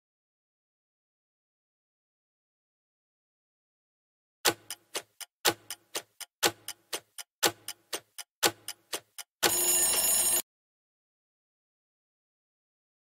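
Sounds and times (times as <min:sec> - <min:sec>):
clock-like ticking: 0:04.4 - 0:10.4.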